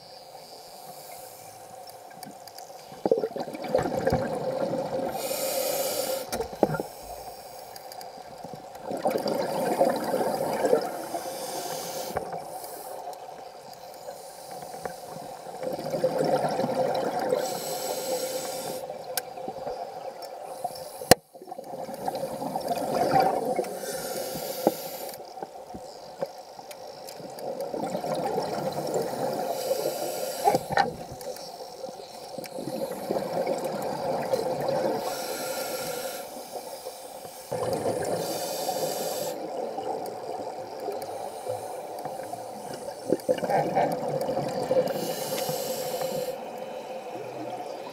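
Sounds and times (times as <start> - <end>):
exhaled bubbles: 3.0 - 5.4, 8.7 - 12.4, 15.5 - 17.5, 21.4 - 23.9, 27.3 - 31.2, 32.4 - 35.3, 37.5 - 47.9
diver breathing through regulator: 5.1 - 7.8, 9.7 - 13.1, 17.4 - 18.9, 23.4 - 25.2, 29.4 - 30.8, 34.9 - 39.5, 41.1 - 43.5, 44.7 - 47.1.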